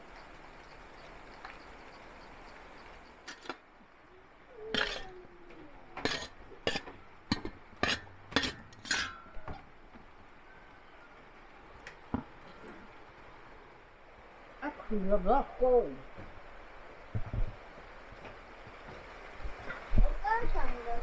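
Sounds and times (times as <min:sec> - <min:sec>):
metal spoon clinking on dishes: 0:04.8 - 0:05.1, 0:06.0 - 0:09.3.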